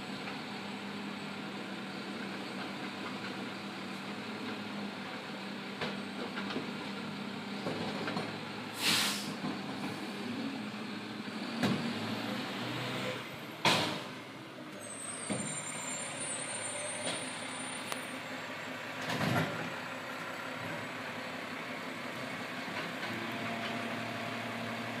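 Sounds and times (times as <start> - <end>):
air brake hisses: 8.7 - 9.4.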